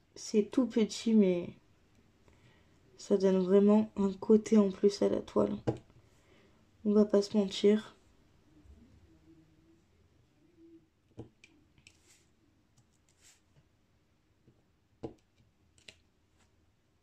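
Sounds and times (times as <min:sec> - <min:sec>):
stylus clicking and tapping: 0:11.0 - 0:12.0, 0:14.5 - 0:16.1.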